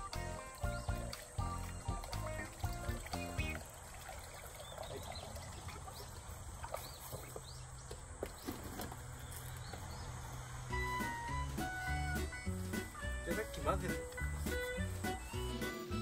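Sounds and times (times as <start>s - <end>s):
water trickling onto bran: 0.0s - 9.9s
small birds chirping: 0.0s - 16.0s.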